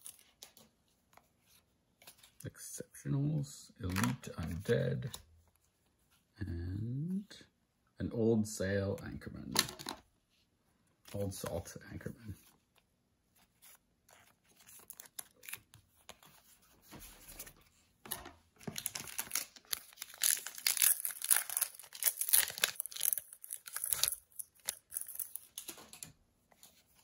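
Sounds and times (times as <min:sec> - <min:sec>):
foil wrapper tearing and crinkling: 0:18.7 - 0:25.7.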